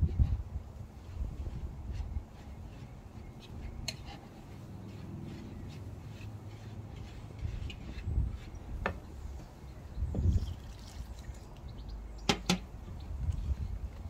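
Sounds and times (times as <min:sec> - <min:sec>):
wind buffeting microphone: 0:00.0 - 0:04.2, 0:05.3 - 0:14.0
whisk stirring flour in bowl: 0:01.0 - 0:08.8.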